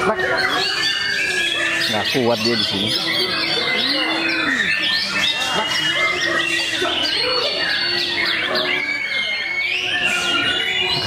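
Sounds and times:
birds singing: 0.0s - 11.0s.

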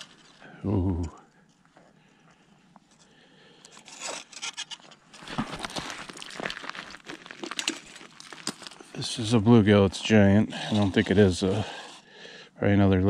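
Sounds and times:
scraping and crunching on slushy ice: 3.8s - 12.0s.

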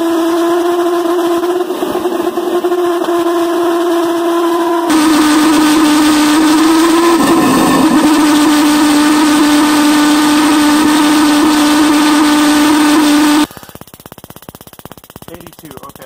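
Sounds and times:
pulse jet engine buzzing: 1.0s - 13.8s.

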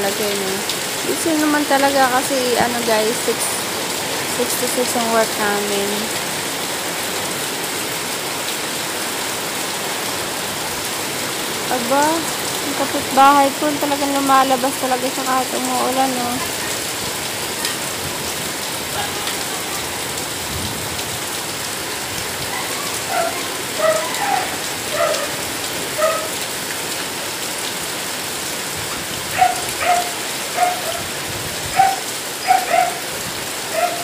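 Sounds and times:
heavy rain falling: 0.0s - 34.0s
dog barking: 18.9s - 19.7s, 22.5s - 26.4s, 29.3s - 31.1s, 31.7s - 33.1s, 33.7s - 34.0s.

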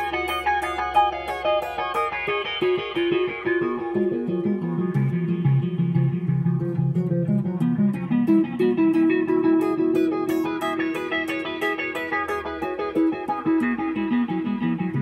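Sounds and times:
electric guitar with echoing delay: 0.0s - 15.0s.

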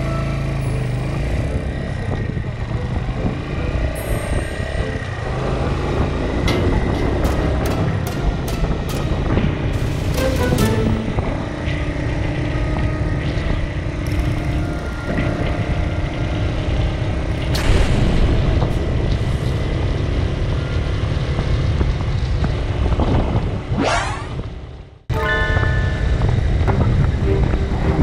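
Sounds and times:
motorcycle engine cruising: 0.0s - 28.0s
wind rush on microphone: 2.0s - 9.9s, 10.5s - 24.9s, 25.9s - 28.0s.

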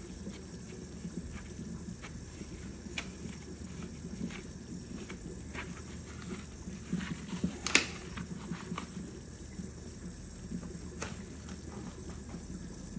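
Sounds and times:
rubber gloves rubbing and slapping: 0.0s - 9.0s.

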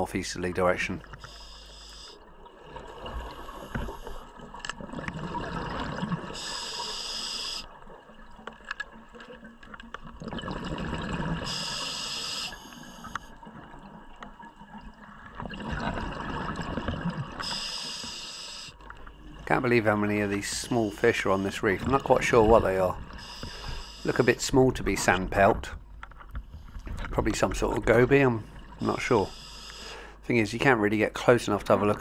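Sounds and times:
regulator hiss: 1.2s - 2.2s, 6.4s - 7.7s, 11.5s - 13.3s, 17.4s - 18.8s, 20.1s - 21.7s, 23.1s - 24.6s, 28.8s - 30.2s
gurgling exhaled bubbles: 2.4s - 6.6s, 10.0s - 11.8s, 14.6s - 17.5s.

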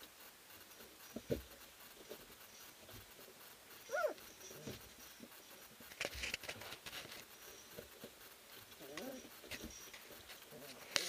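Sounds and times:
puppy whimper: 3.8s - 4.8s.

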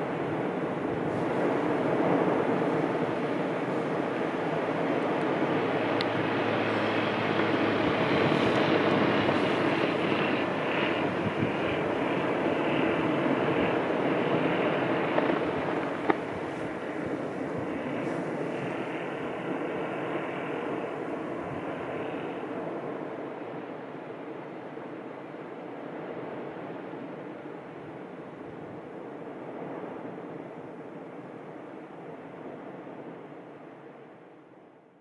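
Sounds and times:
lava fountain roaring: 0.0s - 23.4s.

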